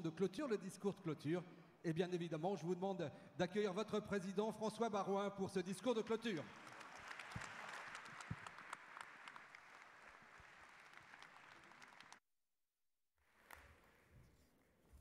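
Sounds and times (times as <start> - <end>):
audience applause: 6.3 - 12.2.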